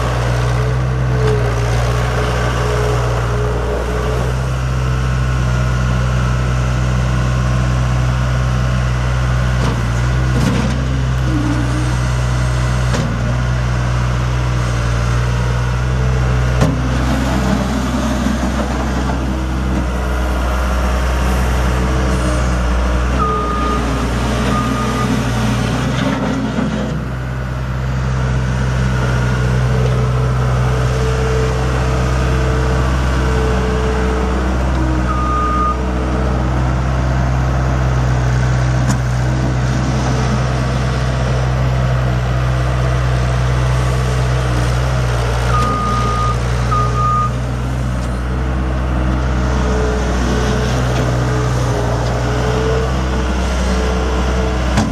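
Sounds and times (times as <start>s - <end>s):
diesel engine running: 0.0s - 54.9s
backup alarm beeps: 45.5s - 47.4s.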